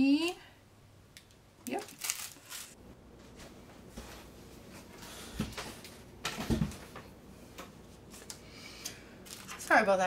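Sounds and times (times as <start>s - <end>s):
paper and plastic bags rustling: 1.7s - 2.8s, 9.2s - 10.0s.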